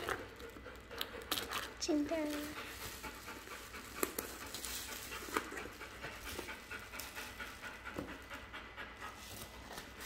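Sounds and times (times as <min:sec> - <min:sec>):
bubble wrap crinkling: 0:00.0 - 0:05.8.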